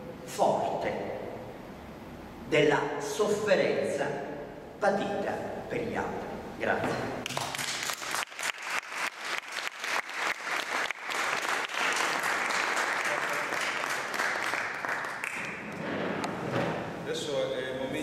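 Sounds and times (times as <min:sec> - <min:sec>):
audience applauding: 0:07.2 - 0:15.9.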